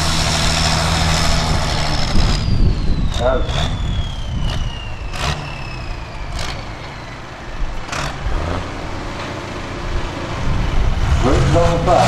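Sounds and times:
tractor engine running: 0.0s - 12.0s
high whistle falling in pitch: 2.0s - 7.7s.

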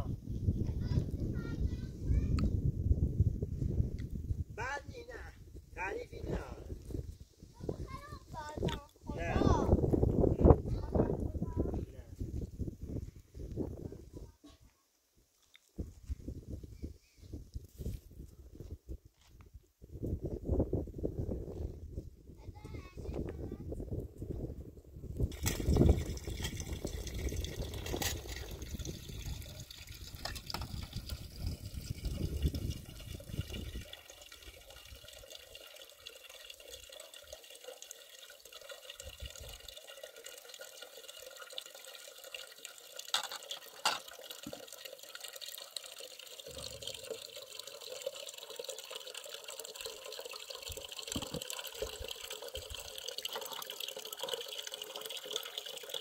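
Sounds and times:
tap water splashing into metal pot: 25.3s - 56.0s.

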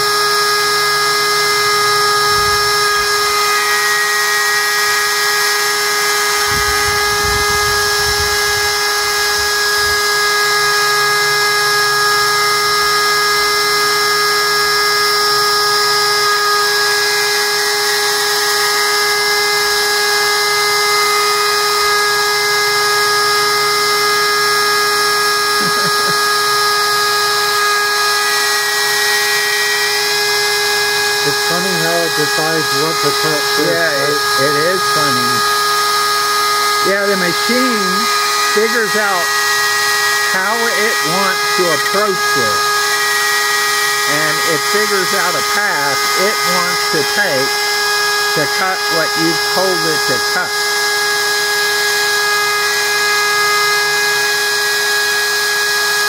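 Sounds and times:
router spindle whining: 0.0s - 56.0s.

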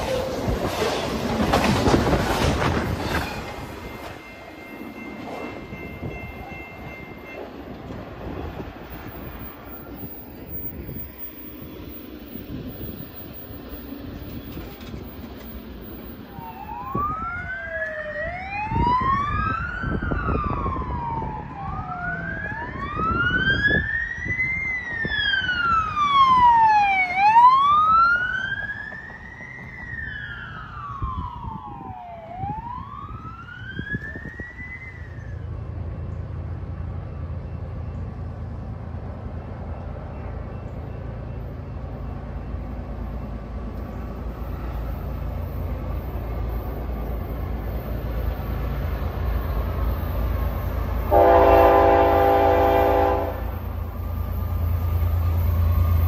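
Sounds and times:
emergency siren wailing: 15.8s - 36.1s, 47.4s - 53.6s.

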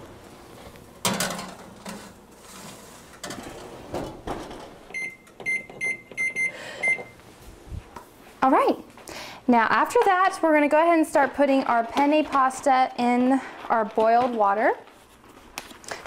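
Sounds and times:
baking sheet clattering on oven rack: 1.0s - 4.8s
electronic keypad beeps: 4.9s - 7.1s.

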